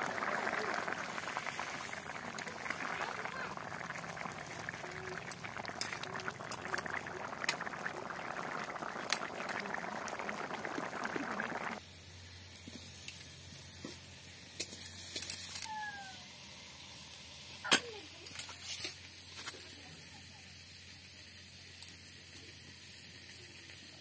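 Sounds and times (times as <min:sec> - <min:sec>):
curry boiling and bubbling: 0:00.0 - 0:11.8.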